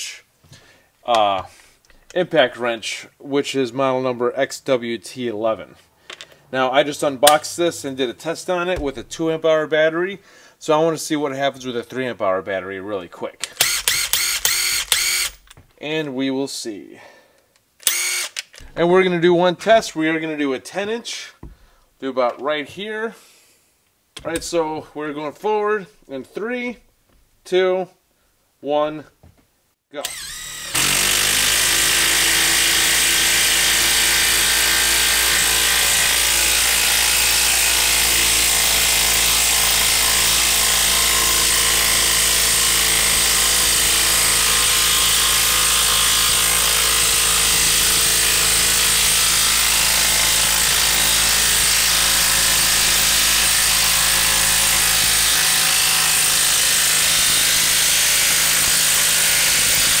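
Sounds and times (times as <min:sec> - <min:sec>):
impact wrench hammering: 0:08.8 - 0:09.2, 0:13.5 - 0:15.6.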